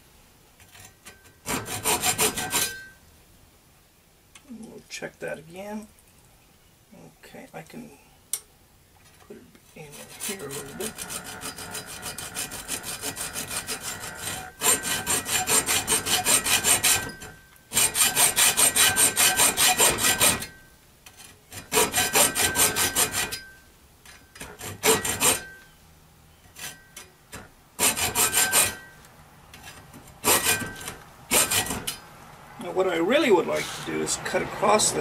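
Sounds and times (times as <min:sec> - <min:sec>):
hacksaw cutting metal: 0:00.6 - 0:03.0, 0:09.8 - 0:25.7, 0:26.5 - 0:29.0, 0:29.6 - 0:32.1.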